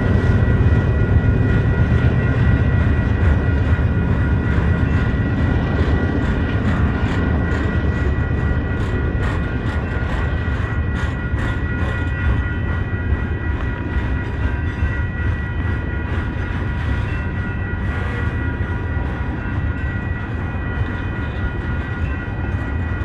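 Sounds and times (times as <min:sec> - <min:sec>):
high ringing tones: 0:00.0 - 0:23.0
train cars rumbling past: 0:00.0 - 0:23.0.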